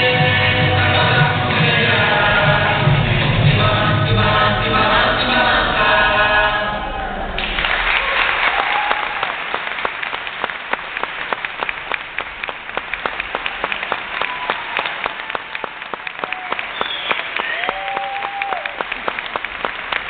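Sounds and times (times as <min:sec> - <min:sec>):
group singing: 0:00.0 - 0:07.4
audience applause: 0:07.4 - 0:20.0.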